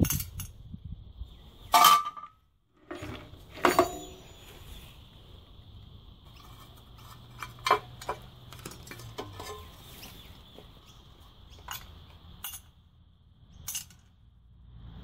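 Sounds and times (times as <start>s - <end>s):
metal clinks and clanks: 1.7s - 4.6s, 6.3s - 9.9s, 11.5s - 12.8s, 13.6s - 14.2s.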